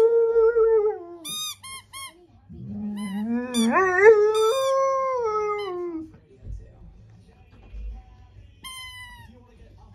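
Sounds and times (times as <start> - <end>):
dog howling: 0.0 - 1.3, 2.6 - 6.0
squeaky toy squeaking: 1.2 - 2.2, 3.0 - 4.8, 8.6 - 9.3.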